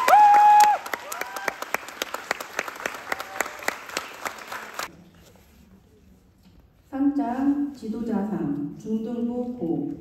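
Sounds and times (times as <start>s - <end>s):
person cheering and whooping: 0.0s - 1.7s
audience clapping: 0.0s - 4.9s.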